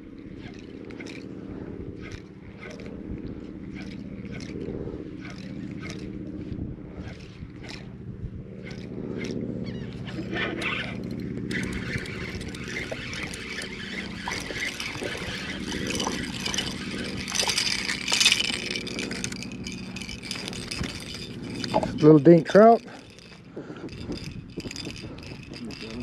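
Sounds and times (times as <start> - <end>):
steady motor hum: 0.0 - 26.0
spinning reel being cranked: 0.4 - 1.3, 2.0 - 6.2, 7.0 - 7.9, 8.6 - 26.0
fish splashing: 10.9 - 22.0.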